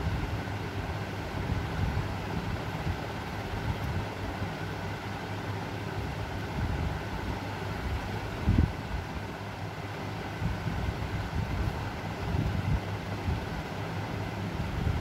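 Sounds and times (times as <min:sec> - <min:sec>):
low hum and rumble: 0:10.2 - 0:15.0.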